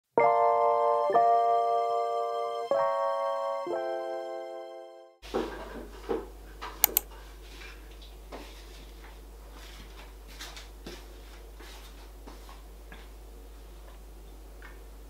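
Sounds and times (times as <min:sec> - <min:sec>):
sharp clicks: 0:06.8 - 0:07.1.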